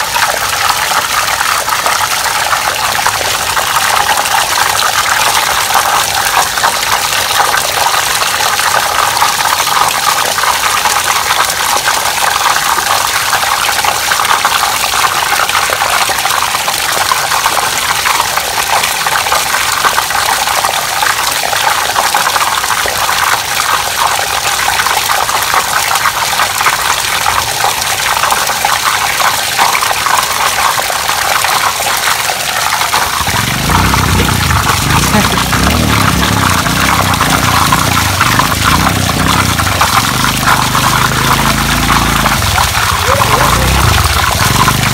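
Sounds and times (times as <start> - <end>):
water gushing into basin: 0.0 - 44.9
water splashing on tiled floor: 0.0 - 44.9.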